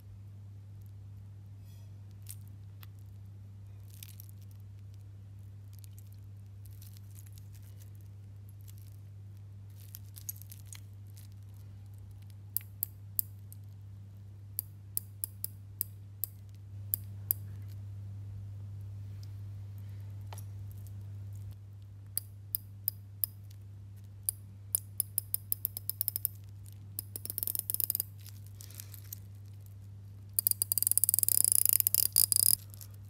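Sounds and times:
watch bezel clicking: 24.3 - 26.4, 27.0 - 28.2, 30.4 - 32.8.

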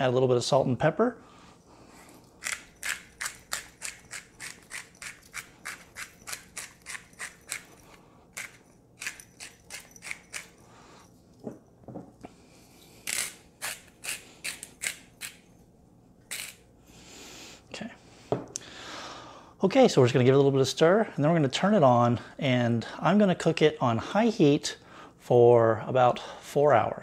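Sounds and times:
pepper grinder grinding: 1.9 - 10.7, 12.8 - 15.5, 16.3 - 16.6.

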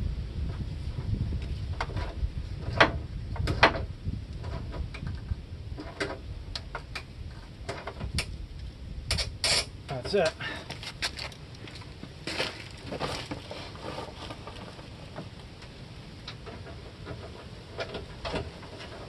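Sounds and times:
low rumble: 0.0 - 12.8.

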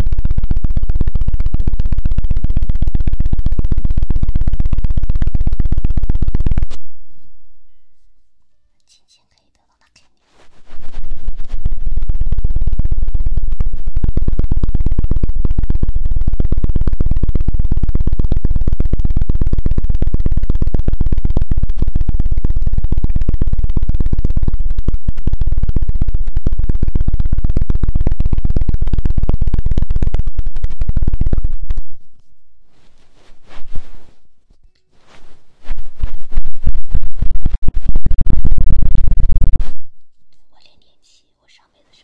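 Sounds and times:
scratching on microphone: 9.9 - 39.8
heavy low thud: 11.0 - 32.1.

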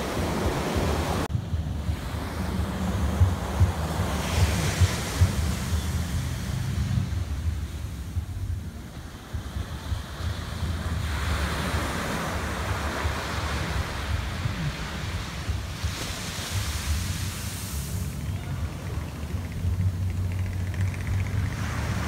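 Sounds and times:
wind rumbling on microphone: 0.0 - 22.0
small waves breaking on sand: 9.0 - 18.9.

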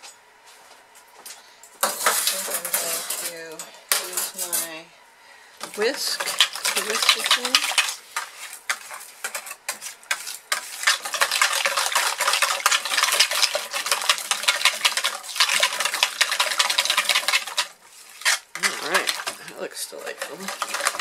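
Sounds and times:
whisk beating batter in bowl: 5.7 - 21.0.

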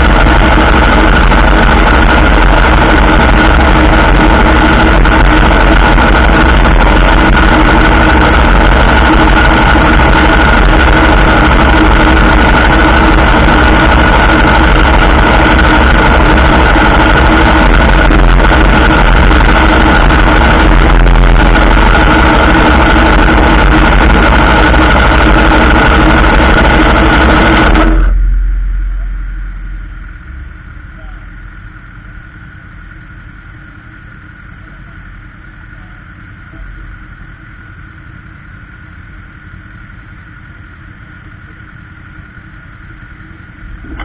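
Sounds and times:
motorcycle engine idling: 28.0 - 44.0.

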